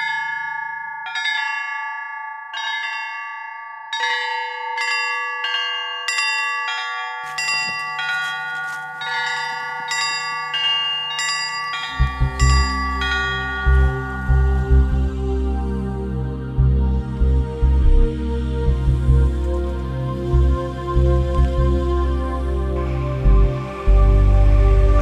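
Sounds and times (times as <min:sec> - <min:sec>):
bells ringing a peal: 0:00.0 - 0:16.3
deep rhythmic low sound: 0:12.0 - 0:25.0.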